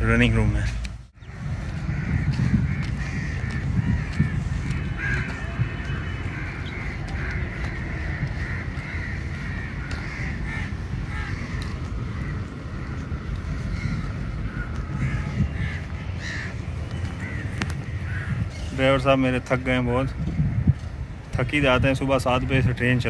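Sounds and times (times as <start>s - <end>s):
crows cawing: 1.2s - 18.8s.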